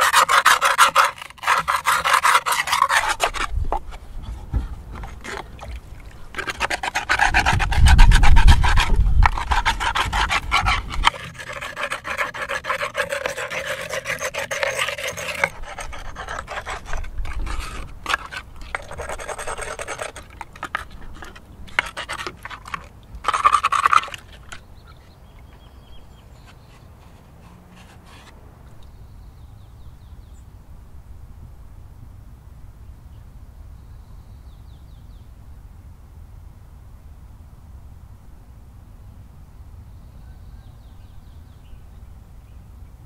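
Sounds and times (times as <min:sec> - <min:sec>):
scrubbing in dish of water: 0:00.0 - 0:25.6.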